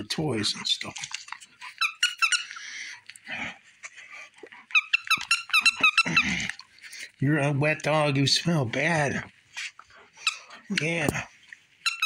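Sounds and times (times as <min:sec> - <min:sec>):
squeaky dog toy squeaking: 0:01.5 - 0:02.6, 0:04.7 - 0:06.2.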